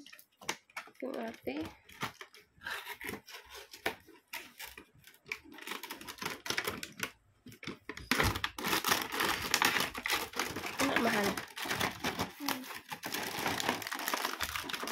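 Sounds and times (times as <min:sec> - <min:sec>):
cardboard rustling: 0:00.7 - 0:14.9.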